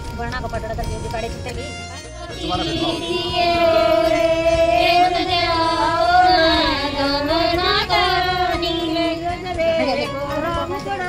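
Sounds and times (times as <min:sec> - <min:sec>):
woman singing slow melody: 0:03.2 - 0:11.0.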